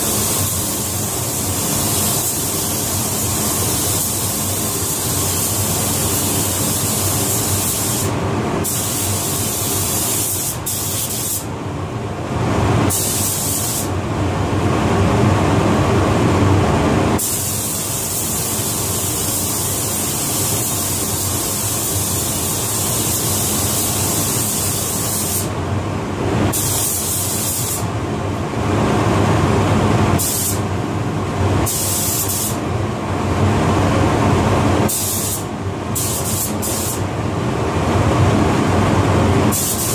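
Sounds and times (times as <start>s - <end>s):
spray gun hissing: 0.0s - 11.5s, 12.9s - 13.9s, 17.2s - 25.5s, 26.6s - 27.8s, 30.2s - 30.6s, 31.7s - 32.6s, 34.9s - 37.0s, 39.5s - 39.9s.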